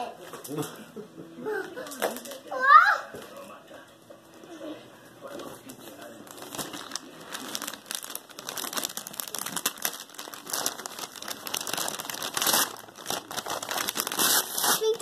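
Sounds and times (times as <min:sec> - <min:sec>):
foil gift wrap crinkling and ripping: 0:01.8 - 0:02.4, 0:05.7 - 0:15.0.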